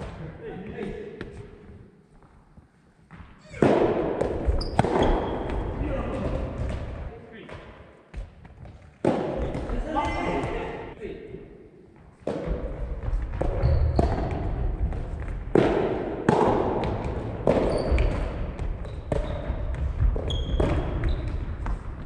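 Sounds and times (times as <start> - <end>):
tennis ball hits and bounces: 3.1 - 5.6, 12.2 - 19.5
shoes squeaking on floor: 4.5 - 5.6, 13.4 - 14.4, 17.6 - 21.8.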